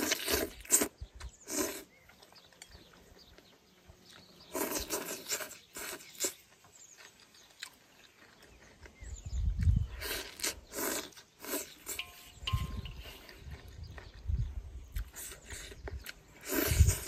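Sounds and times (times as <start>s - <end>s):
person slurping noodles: 0.0s - 2.0s, 4.5s - 6.4s, 9.9s - 12.0s, 16.4s - 17.0s.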